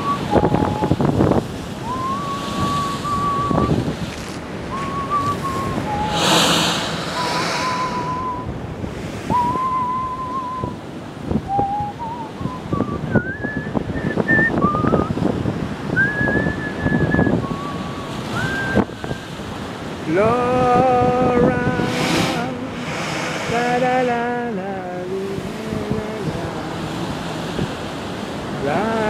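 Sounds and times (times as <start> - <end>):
person whistling a slow tune: 0.0 - 1.0, 1.8 - 3.8, 4.7 - 8.5, 9.3 - 10.8, 11.4 - 15.2, 15.9 - 18.9
sea surf breaking: 0.0 - 29.0.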